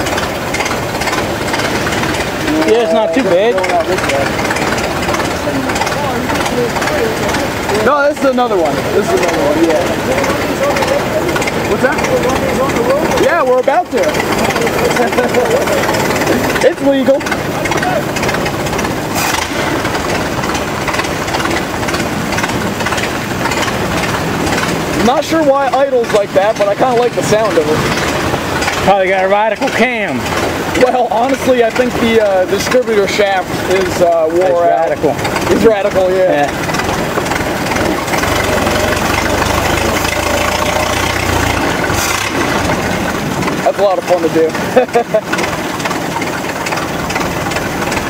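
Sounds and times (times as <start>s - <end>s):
car engine idling: 0.0s - 48.0s
people talking: 1.0s - 19.0s, 23.6s - 48.0s.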